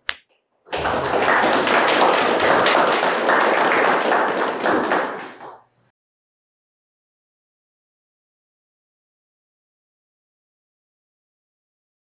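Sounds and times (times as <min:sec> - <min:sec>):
audience applauding: 0:00.7 - 0:05.7.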